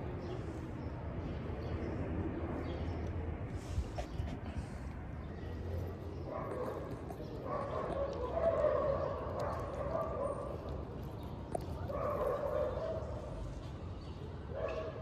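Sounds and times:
cat crunching dry kibble: 6.4s - 12.8s.

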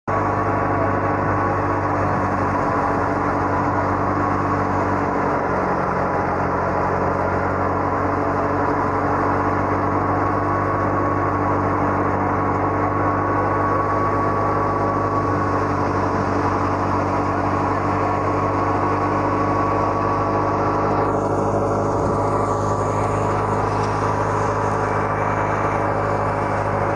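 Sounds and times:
thresher machine humming and whining: 0.1s - 26.9s.

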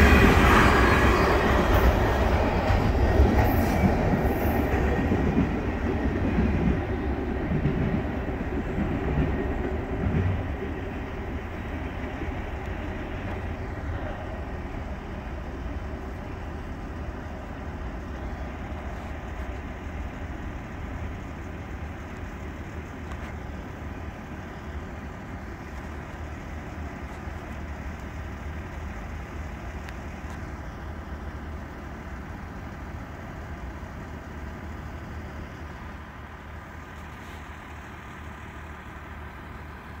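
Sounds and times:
truck engine idling: 10.6s - 40.0s.

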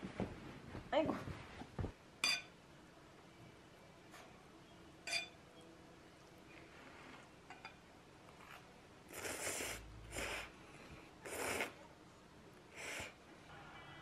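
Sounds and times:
person slurping noodles: 9.1s - 10.5s, 11.2s - 11.8s.

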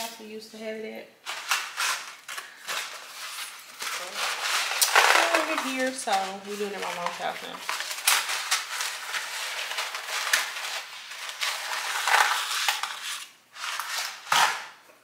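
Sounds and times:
dry spaghetti rustling and clattering: 1.2s - 14.7s
loud crack: 3.8s - 5.9s, 7.7s - 14.8s.

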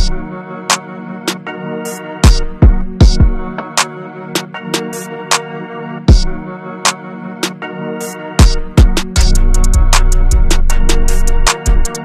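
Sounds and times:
keyboard chords over beat: 0.0s - 12.0s
deep kick drum: 2.3s - 3.5s, 6.1s - 6.3s, 8.4s - 10.5s.

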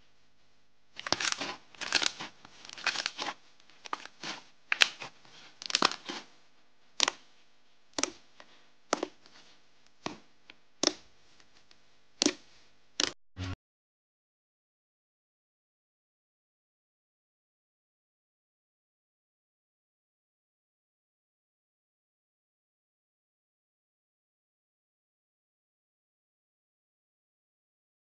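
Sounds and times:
slime squishing and crackling: 1.0s - 6.3s, 8.9s - 9.4s.

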